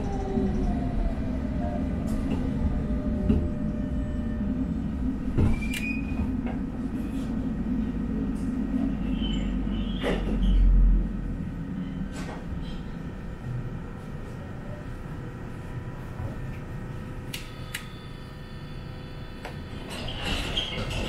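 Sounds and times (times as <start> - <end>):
tram rumble: 0.0 - 17.4, 18.8 - 21.0
tram clicks and knocks: 1.9 - 3.7, 5.2 - 6.8, 9.9 - 10.8
tram wheel squeal: 2.9 - 6.3, 9.0 - 10.9, 19.7 - 21.0.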